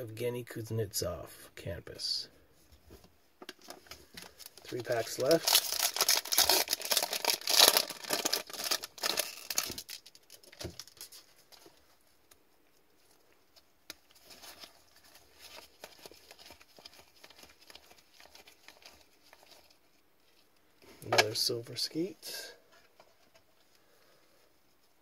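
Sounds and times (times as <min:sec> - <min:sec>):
foil pack tearing and crinkling: 0:04.4 - 0:11.1.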